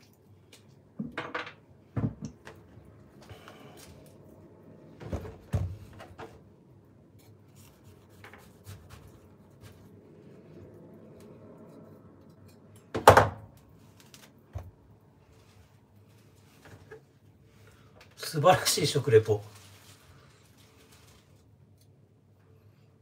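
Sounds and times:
pomelo peel rubbing: 7.3s - 10.2s.

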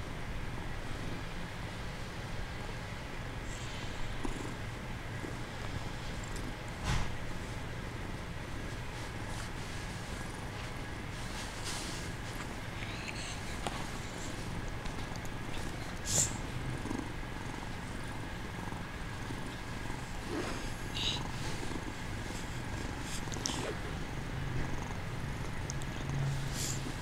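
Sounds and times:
kitten purring: 3.4s - 27.0s
soft rustles: 8.6s - 15.8s.

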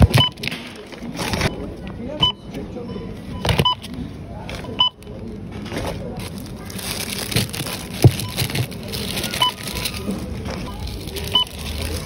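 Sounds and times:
background chatter: 0.0s - 12.0s
rustling: 5.7s - 12.0s.

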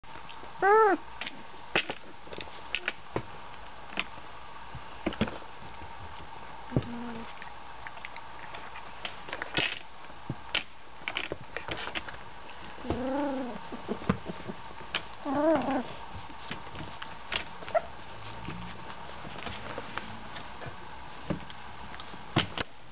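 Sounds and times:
puppies whining: 0.6s - 1.0s, 12.8s - 13.8s, 15.2s - 16.0s, 17.6s - 18.0s.

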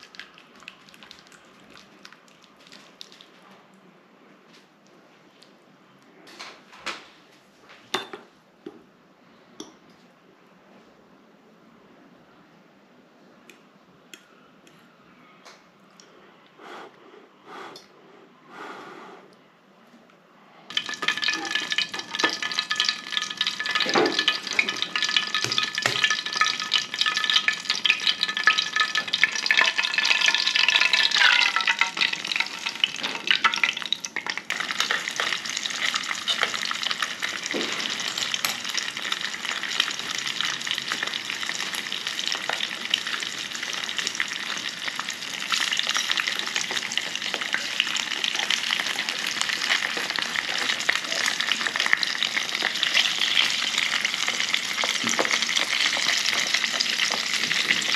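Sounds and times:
oil sizzling in a frying pan: 20.7s - 57.9s.

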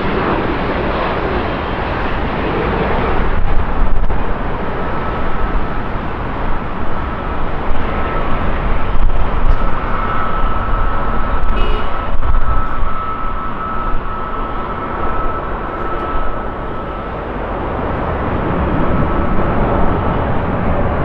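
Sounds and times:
jet engines rushing with whine: 0.0s - 21.0s.

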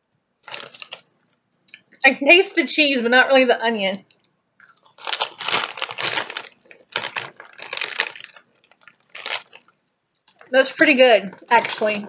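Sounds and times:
chewing crunchy chips: 0.4s - 1.0s, 4.6s - 9.7s
plastic chip bag crinkling: 0.4s - 1.1s, 4.6s - 12.0s.

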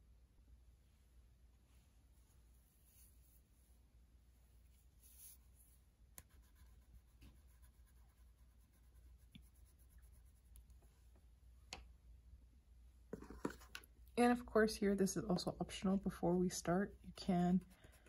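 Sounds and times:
crayon rubbing on paper: 5.0s - 10.6s.

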